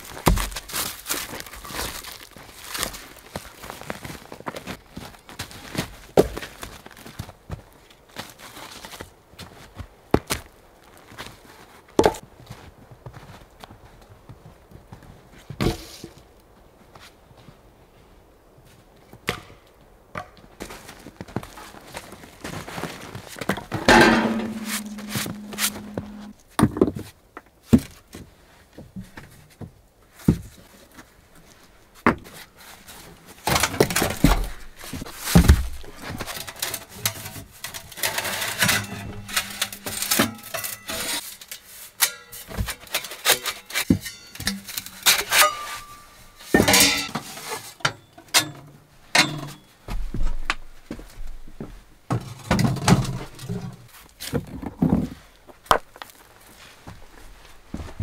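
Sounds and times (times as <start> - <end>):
sheet metal stove clanking: 23.8 - 26.3, 36.4 - 41.2, 42.0 - 49.6
ringing metal clang: 23.9 - 26.3, 38.6 - 41.2, 43.9 - 47.2, 47.9 - 49.7.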